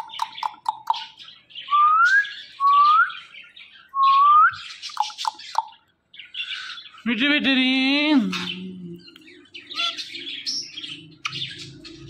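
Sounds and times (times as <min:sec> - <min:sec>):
parakeet chirps: 0:00.0 - 0:01.5, 0:04.6 - 0:07.0, 0:08.2 - 0:12.0
parakeet harsh whistled calls: 0:09.6 - 0:12.0.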